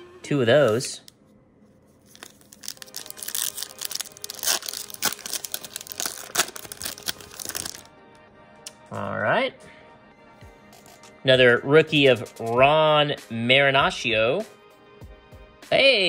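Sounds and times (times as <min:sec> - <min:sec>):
wrapper torn and crinkled: 0:02.0 - 0:07.9.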